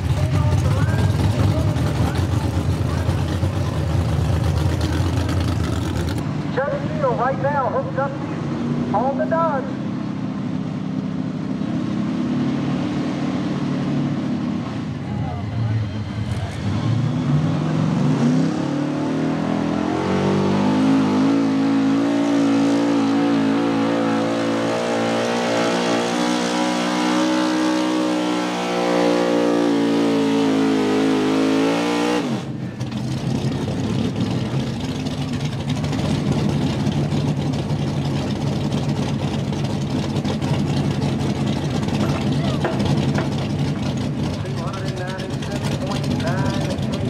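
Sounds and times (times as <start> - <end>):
rough engine idle: 0.0 - 6.2, 32.6 - 47.0
truck engine revving: 0.0 - 47.0.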